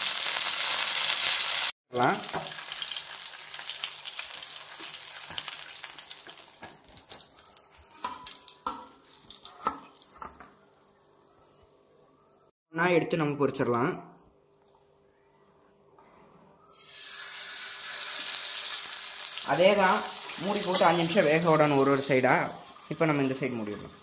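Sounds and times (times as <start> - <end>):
fish sizzling in oil: 0.0 - 10.2, 16.7 - 24.0.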